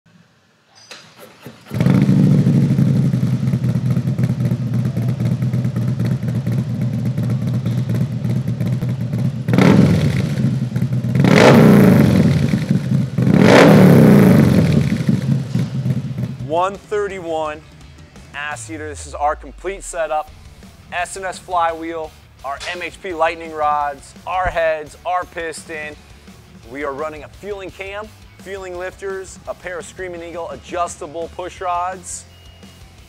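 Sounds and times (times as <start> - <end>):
motorcycle engine idling and revving: 1.1 - 21.0.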